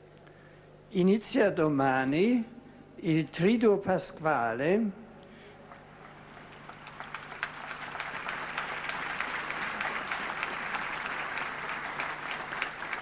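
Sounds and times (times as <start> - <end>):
large crowd applauding: 5.7 - 13.0.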